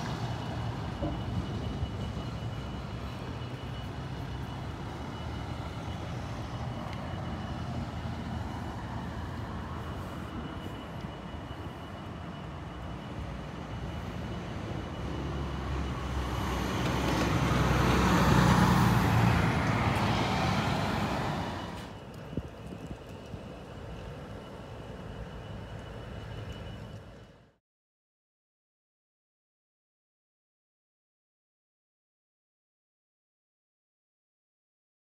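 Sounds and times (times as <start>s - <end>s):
locomotive diesel engine idling: 0.0s - 27.6s
vehicle passing by: 14.9s - 22.0s.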